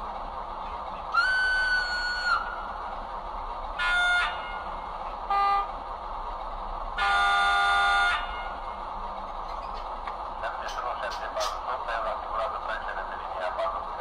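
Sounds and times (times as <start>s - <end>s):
model locomotive horn: 3.8s - 4.6s, 5.3s - 5.7s, 7.0s - 8.6s.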